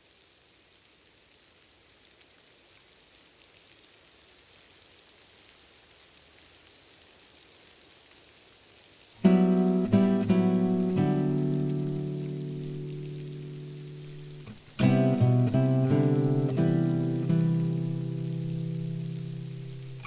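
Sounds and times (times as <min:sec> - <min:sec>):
faint patter of rain: 0:00.0 - 0:20.0
background music: 0:09.3 - 0:13.6.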